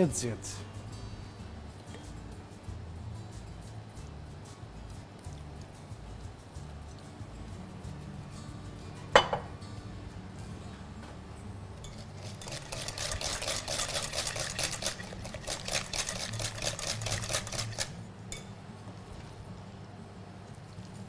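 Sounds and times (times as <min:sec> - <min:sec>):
whisk beating in a bowl: 0:11.8 - 0:18.0.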